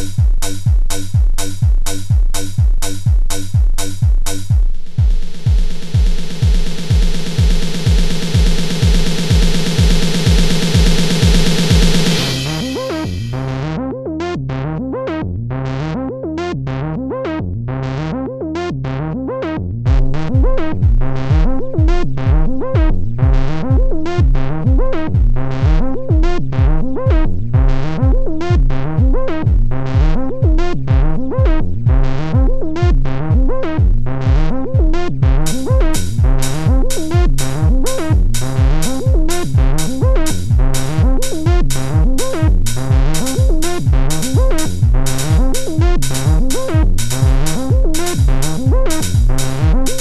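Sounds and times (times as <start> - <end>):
crisp hi-hat ticks: 0.0 - 13.1, 35.4 - 50.0
fast repeating synth pattern: 0.0 - 13.5, 26.6 - 50.0
steady kick drum: 0.0 - 13.7, 19.9 - 50.0.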